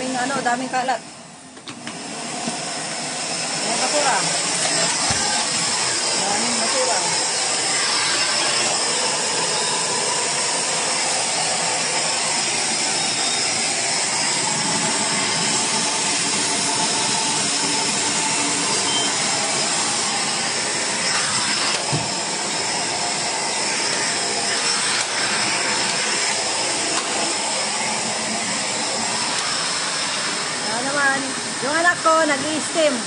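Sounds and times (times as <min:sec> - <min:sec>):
steam cleaner hissing: 0:00.0 - 0:33.0.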